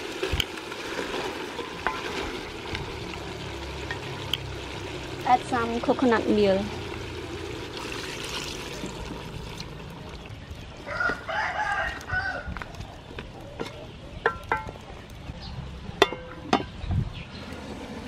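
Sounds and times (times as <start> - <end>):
curry sizzling in a pot: 0.0 - 11.1
rooster crowing: 10.8 - 12.7.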